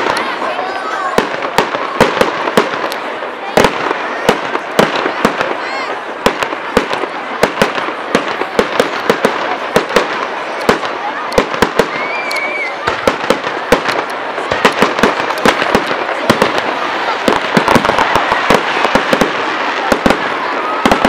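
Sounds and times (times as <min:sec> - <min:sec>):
fireworks bangs: 0:00.0 - 0:21.0
fireworks crackling: 0:00.0 - 0:21.0.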